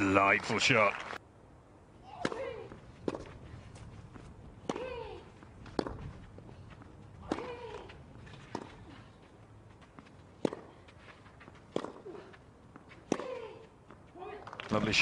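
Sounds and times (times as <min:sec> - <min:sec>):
racquet hitting tennis ball: 0:07.2 - 0:07.9, 0:10.4 - 0:10.7, 0:13.0 - 0:13.6.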